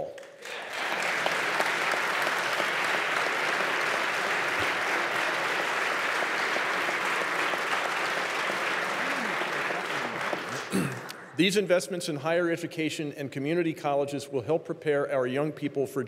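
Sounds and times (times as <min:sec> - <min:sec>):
audience applause: 0:00.2 - 0:11.4.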